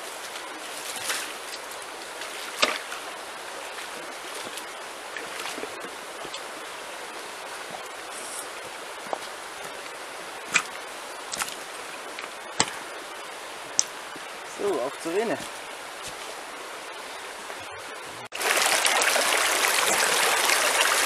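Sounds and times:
stream running over stones: 0.0 - 21.0
footsteps on stony bank: 7.4 - 16.6.

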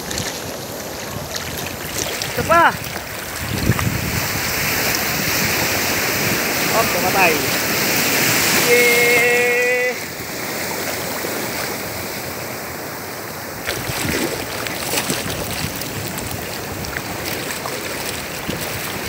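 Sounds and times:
small water splashes and drips: 0.0 - 5.2, 13.6 - 19.0
sea surf churning: 0.0 - 19.0
short held call: 8.4 - 10.2.

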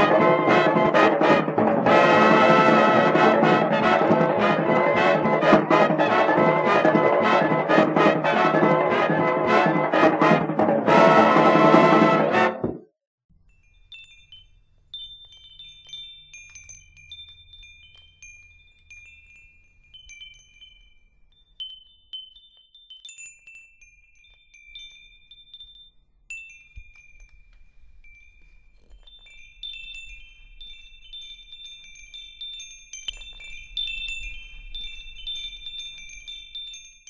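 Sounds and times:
wind chimes tinkling: 13.4 - 37.0.

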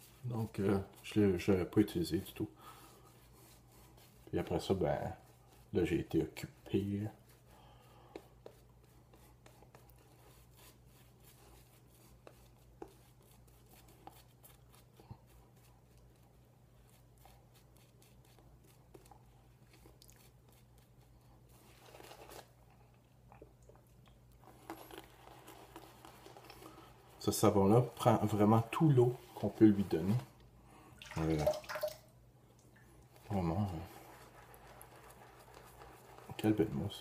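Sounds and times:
shaving brush crackling lather: 3.0 - 7.5, 24.4 - 30.3, 33.2 - 37.0.

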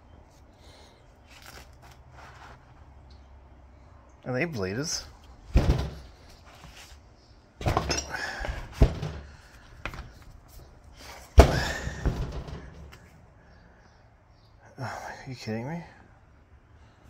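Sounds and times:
metal unit knocking and thudding: 5.5 - 6.3, 7.6 - 10.2, 11.3 - 13.0.

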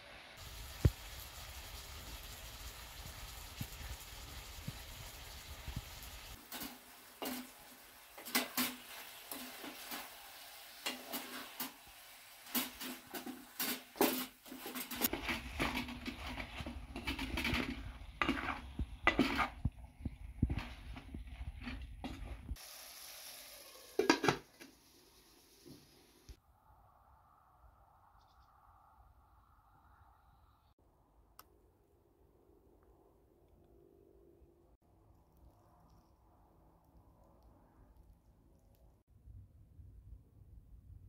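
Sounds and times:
light sizzle: 0.0 - 26.4
wooden spatula scraping metal pot: 6.4 - 10.2, 10.8 - 11.8, 12.4 - 22.6.

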